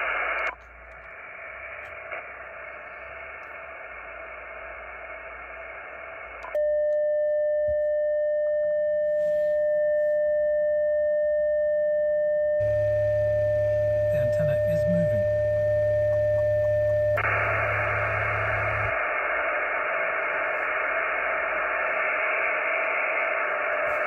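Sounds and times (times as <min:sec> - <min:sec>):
radio receiver hiss: 0:00.0 - 0:06.5, 0:12.6 - 0:24.0.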